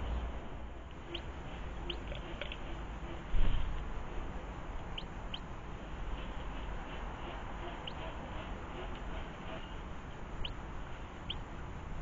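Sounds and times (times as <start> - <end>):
steady low rumble: 0.0 - 12.0
small birds chirping: 0.9 - 3.3, 4.7 - 5.6, 6.3 - 11.5.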